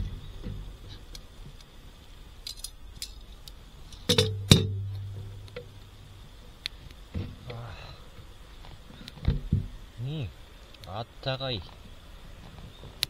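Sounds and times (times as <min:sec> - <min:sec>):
campfire crackling: 0:00.0 - 0:13.0
sharp knocks on metal fire pit: 0:04.1 - 0:05.7.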